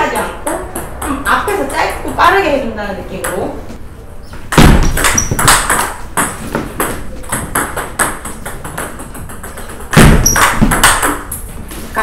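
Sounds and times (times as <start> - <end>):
ball bouncing on table: 4.5 - 11.4.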